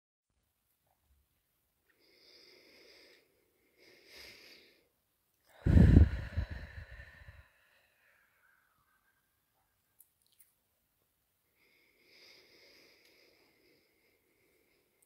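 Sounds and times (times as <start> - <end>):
woman breathing deeply: 1.9 - 4.9, 5.5 - 9.4, 11.5 - 15.0.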